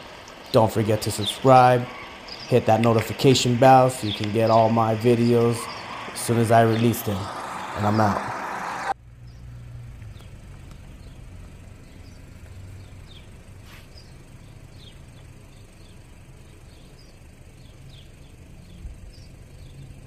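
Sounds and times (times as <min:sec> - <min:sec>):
small birds chirping: 0:00.0 - 0:20.0
steady low rumble: 0:00.0 - 0:20.0.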